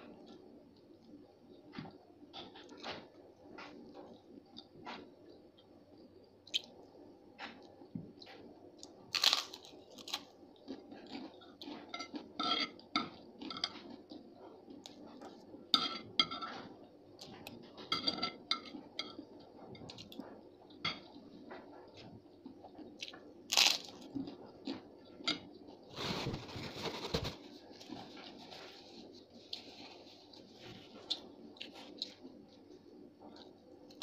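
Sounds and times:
crunchy chewing: 7.5s - 15.5s, 19.9s - 34.0s
cutlery clinking on a plate: 11.7s - 13.9s, 15.8s - 16.8s, 17.8s - 19.2s.

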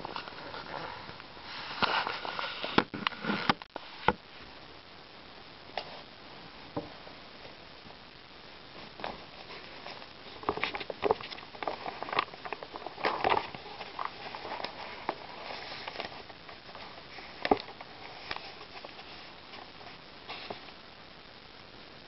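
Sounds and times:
book pages turning: 0.0s - 4.2s, 8.8s - 20.7s.

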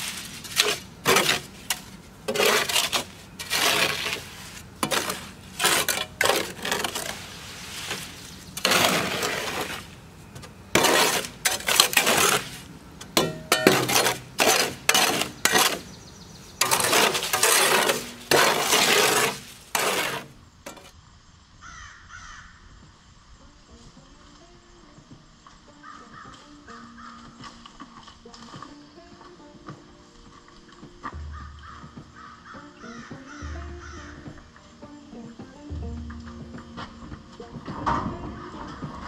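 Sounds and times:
wet concrete scraping from wheelbarrow: 0.0s - 20.9s.

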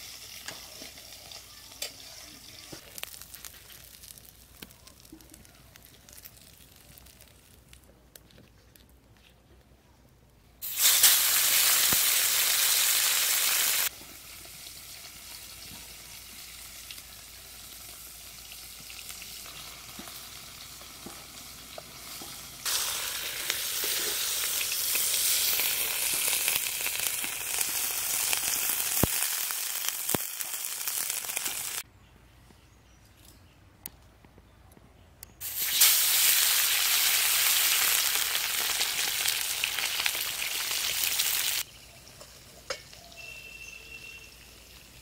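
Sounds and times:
fish frying in hot oil: 0.0s - 7.5s, 10.6s - 21.8s, 22.4s - 31.8s, 35.4s - 42.5s.

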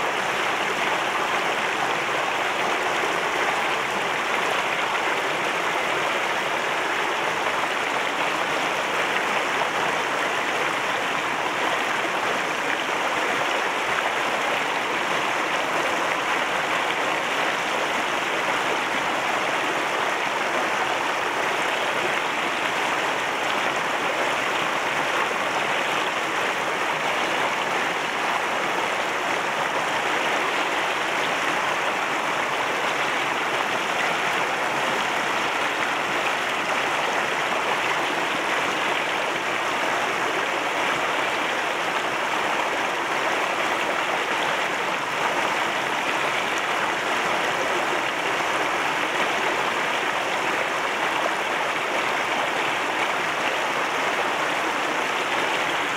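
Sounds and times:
fast stream over rock: 0.0s - 55.9s.

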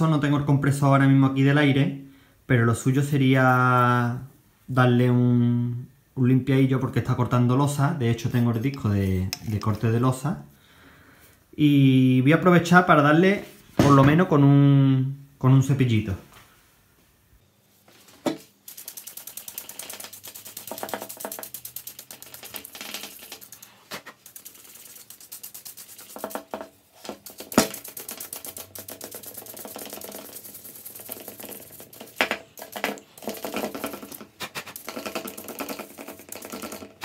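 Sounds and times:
plastic brush scrubbing: 18.6s - 37.0s.

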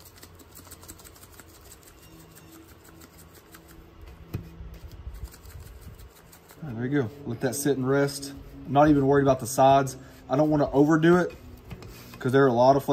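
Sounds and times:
spice shaker rattling: 0.0s - 3.8s, 5.1s - 6.6s.

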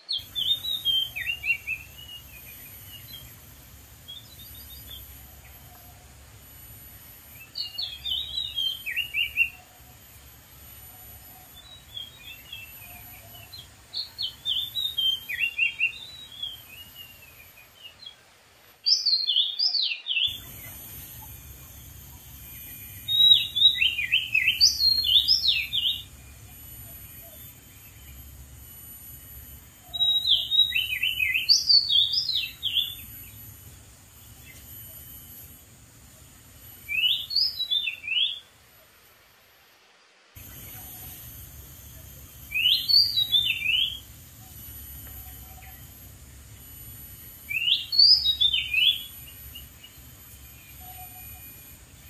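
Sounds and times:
bird singing whistled phrases: 0.0s - 3.3s, 7.4s - 9.6s, 22.5s - 26.1s, 29.8s - 33.0s, 36.9s - 38.4s, 42.5s - 44.0s, 47.5s - 49.4s.

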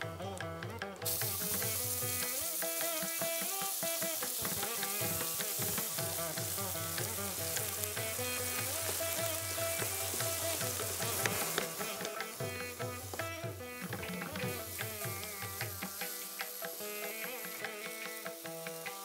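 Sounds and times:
instrumental background music: 0.0s - 19.0s
paste sizzling in hot oil: 1.0s - 19.0s.

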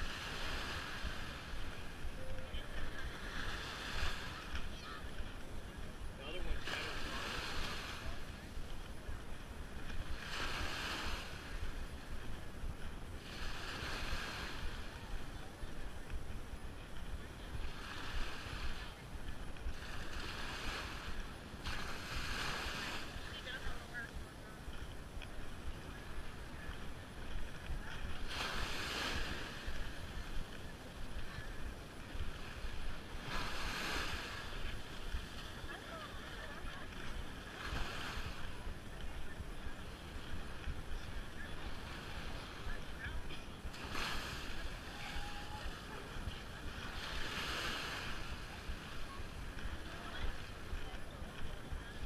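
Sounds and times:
small waves washing on sand: 0.0s - 52.0s
wind rumble on microphone: 0.0s - 52.0s.

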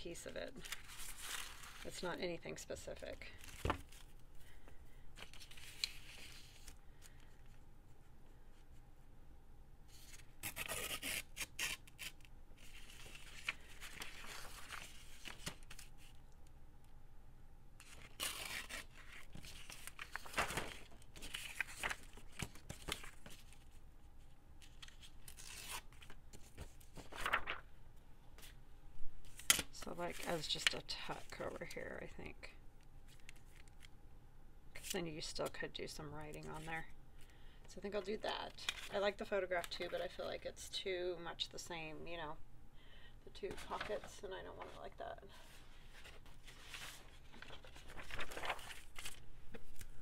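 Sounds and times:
paper and card rustling: 0.1s - 4.6s, 5.2s - 7.6s, 9.9s - 16.2s, 17.8s - 23.8s, 24.6s - 27.7s, 37.9s - 40.3s, 43.4s - 50.0s.

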